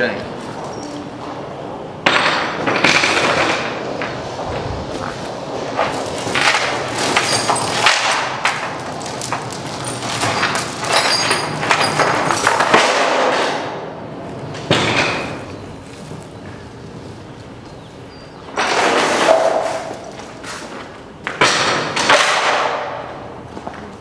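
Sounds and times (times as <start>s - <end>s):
heavy steel chain rattling: 2.8s - 3.6s, 5.7s - 13.2s, 18.6s - 21.0s.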